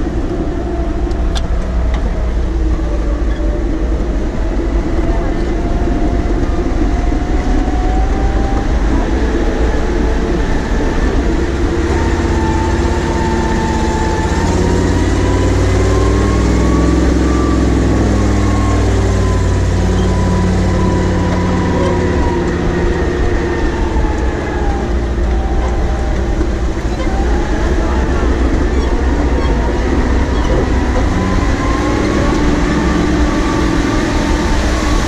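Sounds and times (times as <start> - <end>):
drivetrain whine: 0.0 - 35.0
truck engine rumble: 0.0 - 35.0.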